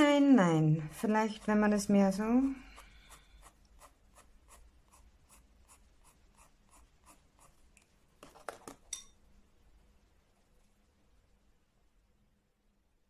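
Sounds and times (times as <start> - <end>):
pencil scratching on paper: 0.9 - 7.7.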